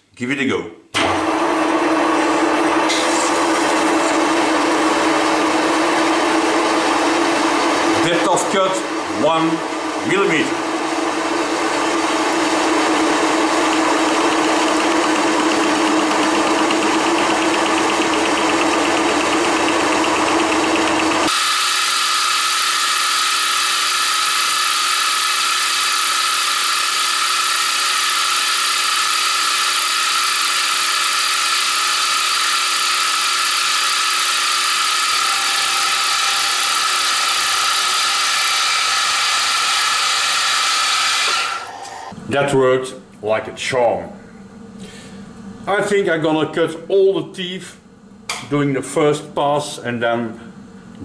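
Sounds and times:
milling machine cutting gear teeth: 13.7s - 42.1s.

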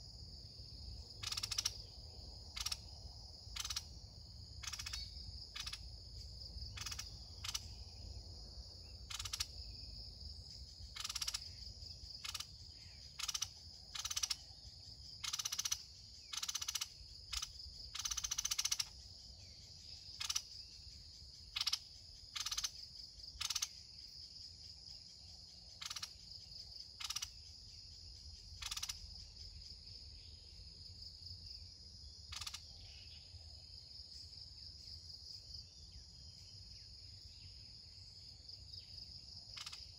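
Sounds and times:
high drone of insects: 0.0s - 39.9s
birds calling in sharp bursts: 1.2s - 1.8s, 20.2s - 20.5s.

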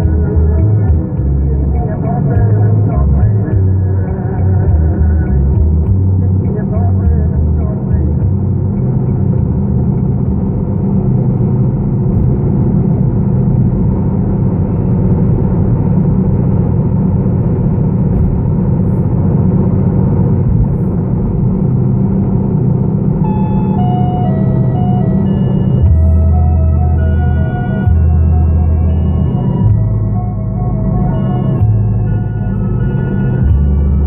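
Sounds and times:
car road and engine rumble: 0.0s - 34.0s
held electronic music notes: 23.1s - 34.0s.

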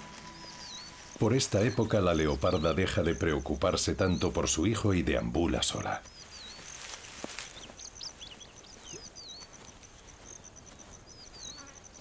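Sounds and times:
insect pulsing trill: 0.0s - 4.8s.

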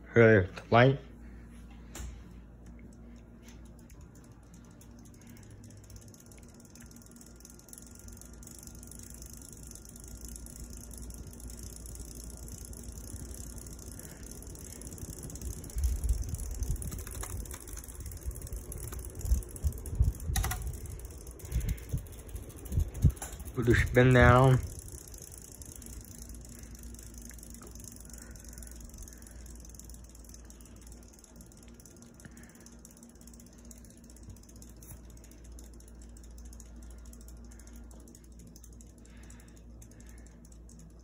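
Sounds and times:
ceiling fan motor hum: 0.0s - 41.0s
fan air rushing: 0.0s - 41.0s.

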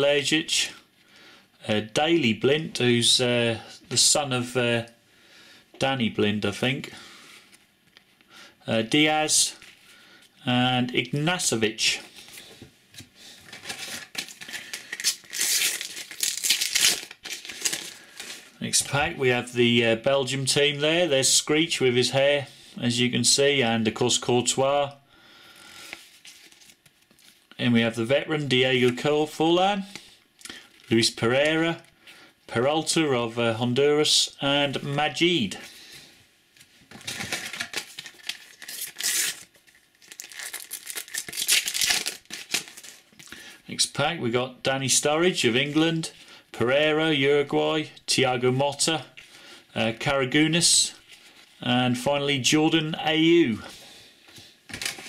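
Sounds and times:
wrapper crinkling and tearing: 13.4s - 18.6s, 25.9s - 27.5s, 36.9s - 43.4s, 54.7s - 55.0s.

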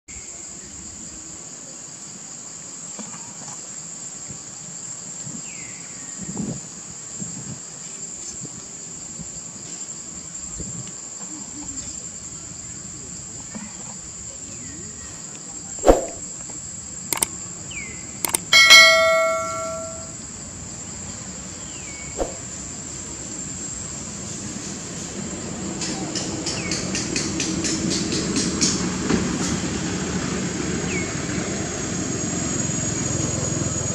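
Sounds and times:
notification bell ringing: 18.3s - 20.1s.

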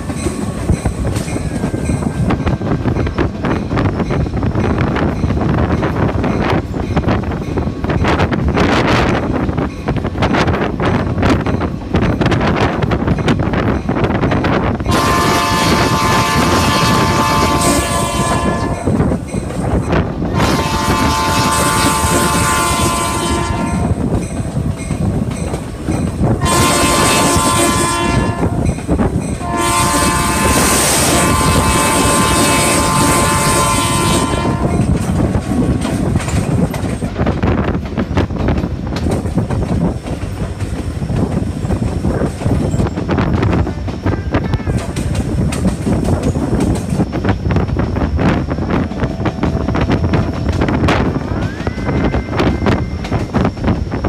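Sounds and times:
train rumble and clatter: 0.0s - 54.0s
locomotive air horn blasts: 14.9s - 19.0s, 20.3s - 24.1s, 26.4s - 28.7s, 29.4s - 34.9s.

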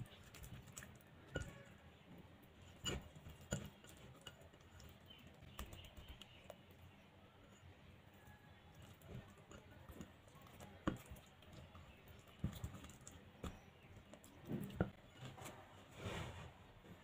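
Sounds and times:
meat tapping against glass bowl: 8.9s - 15.0s.

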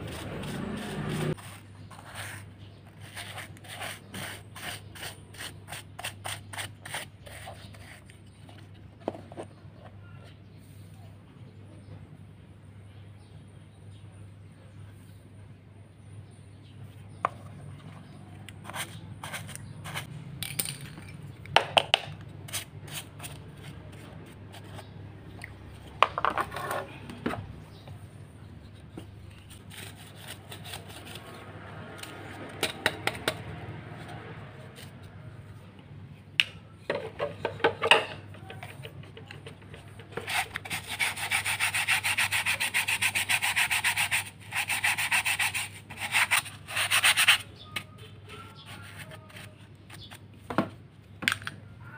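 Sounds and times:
paintbrush scrubbing filter: 0.0s - 8.1s.

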